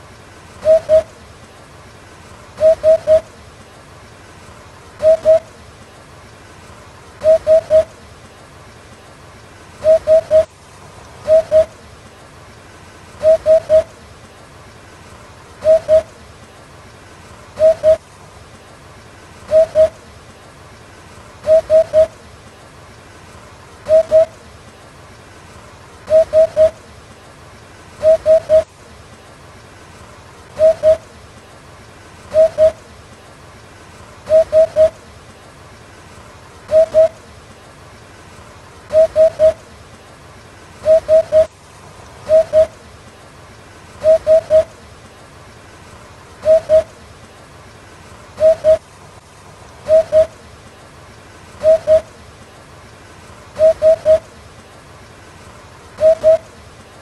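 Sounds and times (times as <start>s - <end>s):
hoopoe calling: 0.6s - 1.3s, 2.6s - 3.4s, 4.9s - 5.6s, 7.2s - 8.1s, 9.8s - 10.5s, 11.2s - 11.9s, 13.2s - 14.1s, 15.6s - 16.2s, 17.6s - 18.0s, 19.5s - 20.1s, 21.4s - 22.3s, 23.8s - 24.5s, 26.0s - 26.9s, 28.0s - 28.7s, 30.5s - 31.2s, 32.2s - 33.0s, 34.2s - 35.1s, 36.7s - 37.3s, 38.8s - 39.8s, 40.8s - 42.9s, 44.0s - 44.9s, 46.4s - 47.0s, 48.4s - 48.9s, 49.8s - 50.5s, 51.6s - 52.2s, 53.6s - 54.4s, 55.9s - 56.6s.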